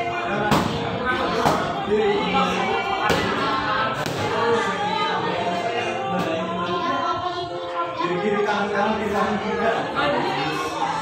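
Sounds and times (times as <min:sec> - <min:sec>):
song with singing: 0:00.0 - 0:11.0.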